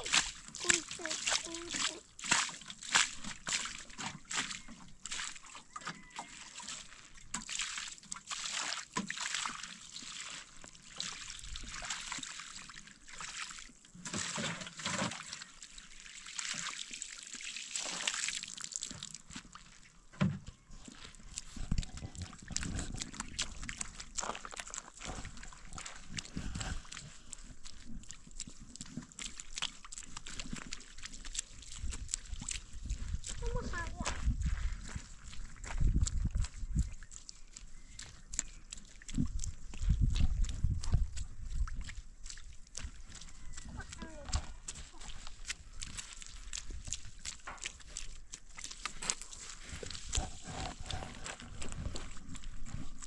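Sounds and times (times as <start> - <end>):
dull thumps treading wet rug: 0.0 - 5.5, 17.8 - 53.0
water splashing and trickling: 0.0 - 53.0.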